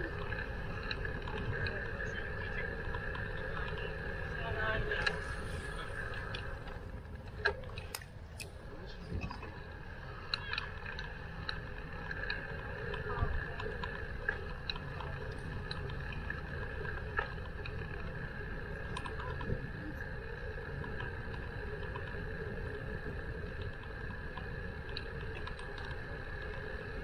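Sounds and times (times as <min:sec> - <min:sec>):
bicycle clicks and rattles: 0:00.0 - 0:27.0
bicycle riding rumble: 0:00.0 - 0:27.0.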